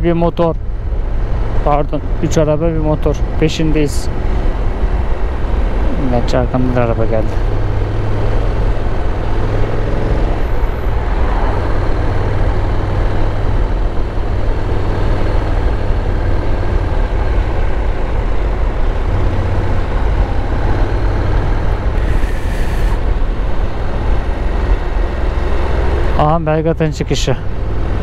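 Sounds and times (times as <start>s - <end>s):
motorcycle engine cruising: 0.0s - 28.0s
rush of road noise: 0.0s - 28.0s
brief hiss: 22.0s - 23.0s.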